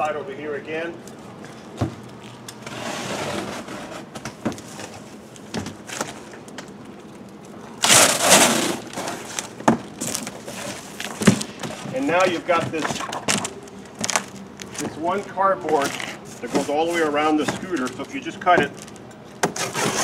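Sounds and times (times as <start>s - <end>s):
box cutter slicing cardboard: 7.8s - 9.2s, 19.4s - 20.0s
cardboard tearing and ripping: 7.8s - 11.4s, 19.4s - 20.0s.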